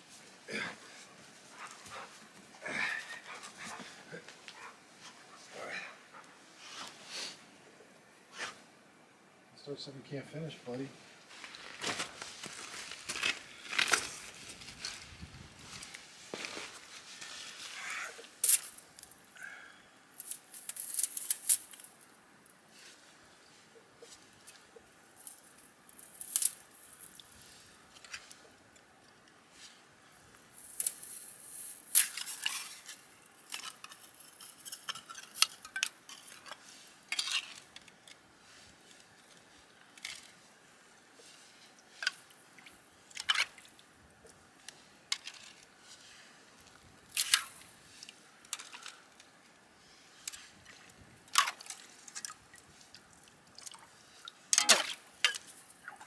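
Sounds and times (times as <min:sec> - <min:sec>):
water splashing and dripping: 0:51.3 - 0:55.1.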